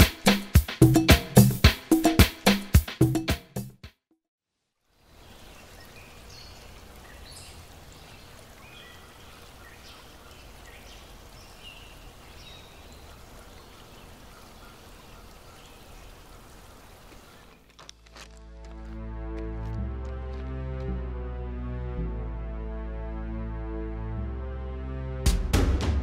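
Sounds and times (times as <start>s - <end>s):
music: 0.0s - 4.2s, 18.4s - 26.0s
stream water hissing: 4.9s - 17.6s.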